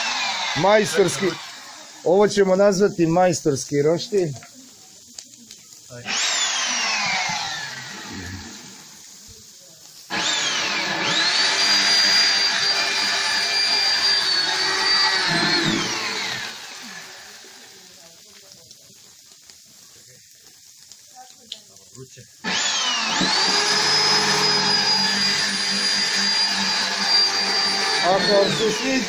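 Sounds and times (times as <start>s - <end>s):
electric drill drilling into steel: 0.0s - 2.1s, 5.9s - 8.9s, 10.1s - 17.6s, 22.4s - 29.0s.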